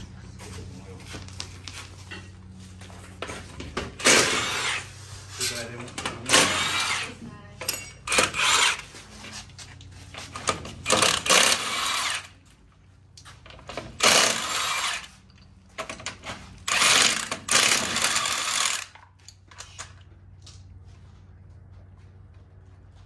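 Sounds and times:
impact wrench hammering: 4.0 - 4.8, 6.3 - 7.1, 7.7 - 8.8, 10.8 - 12.3, 13.8 - 15.1, 16.7 - 19.0.

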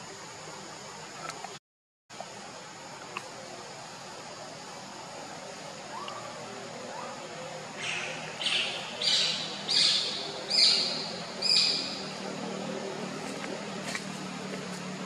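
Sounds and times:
high-pitched animal calls: 5.9 - 7.2.

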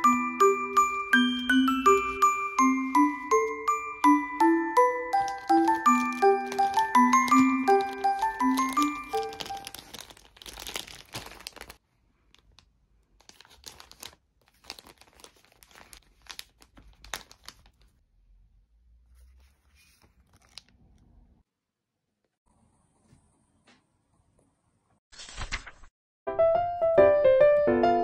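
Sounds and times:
glockenspiel tune: 0.0 - 9.8
plastic packaging crinkling: 4.8 - 18.0, 20.2 - 20.8.

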